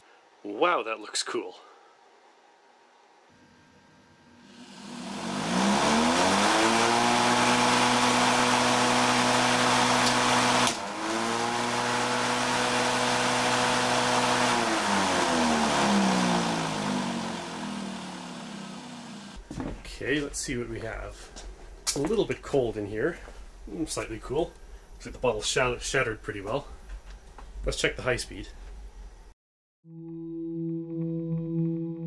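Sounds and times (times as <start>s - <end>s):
electric lawnmower motor whining: 4.4s - 19.4s.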